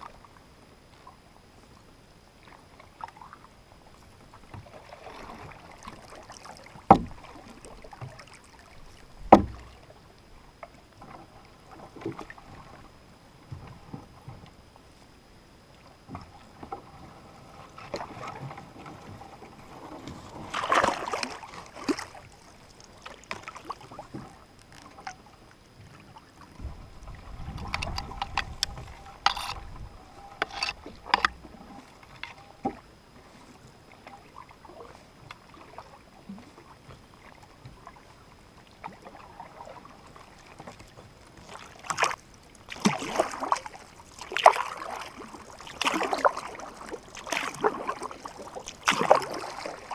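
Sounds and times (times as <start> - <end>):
paddle splashing water: 0.0 - 49.9
wind rumble on microphone: 26.5 - 32.6.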